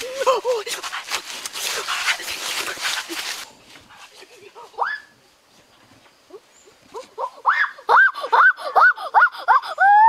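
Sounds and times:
boy yelping: 0:07.0 - 0:10.0.

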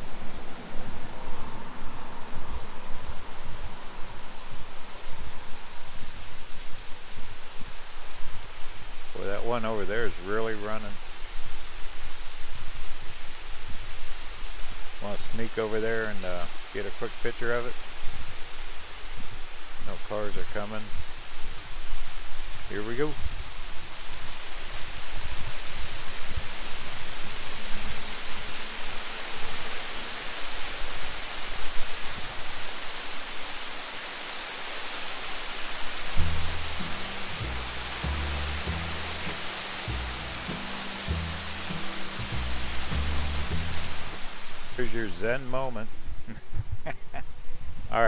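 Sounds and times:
waterfall rushing: 0:00.0 - 0:46.3.

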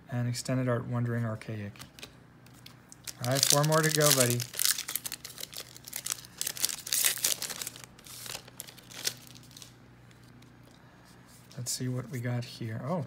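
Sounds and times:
foil wrapper crinkling and tearing: 0:02.9 - 0:09.8.

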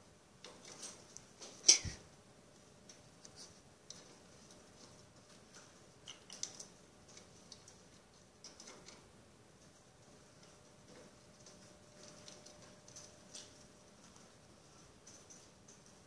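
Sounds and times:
parrot beak and claws tapping: 0:02.9 - 0:09.0.

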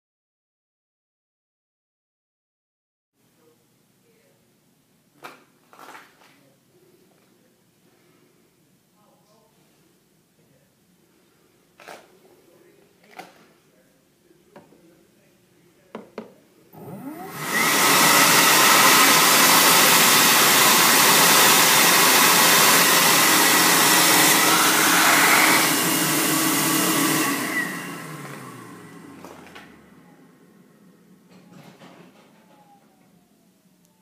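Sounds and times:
hand dryer blowing air: 0:16.7 - 0:29.9
dryer motor winding down whine: 0:16.7 - 0:31.1.

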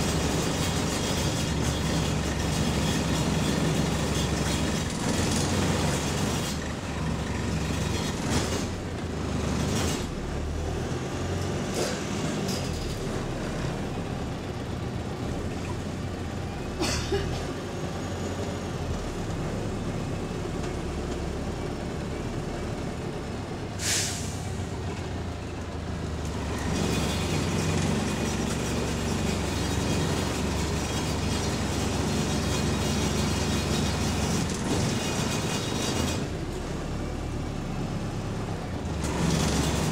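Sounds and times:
bus engine drone: 0:00.0 - 0:39.9
air hiss: 0:23.8 - 0:24.5.

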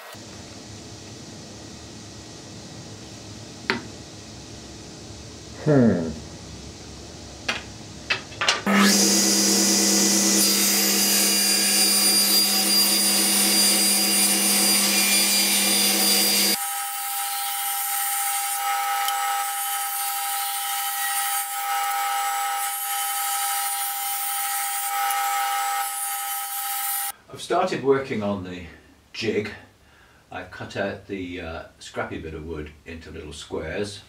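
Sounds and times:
table saw ripping wood: 0:08.6 - 0:27.1.

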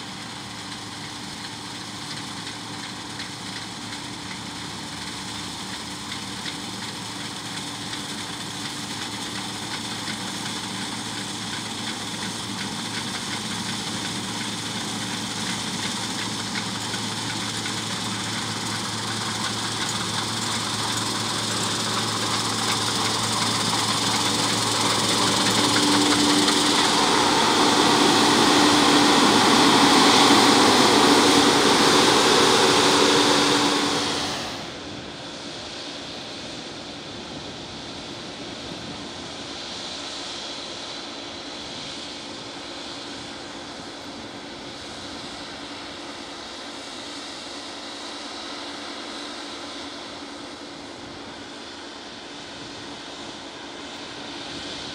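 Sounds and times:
harvester diesel engine running: 0:00.0 - 0:35.2
rushing noise: 0:19.0 - 0:35.3.

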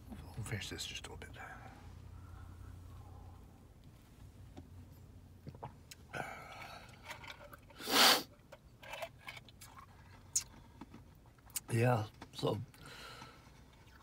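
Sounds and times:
man drinking soup: 0:05.4 - 0:11.7.

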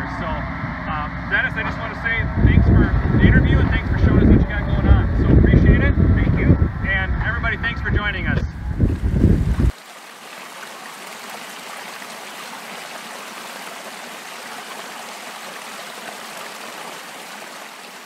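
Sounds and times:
water running over rocks: 0:08.8 - 0:18.0.

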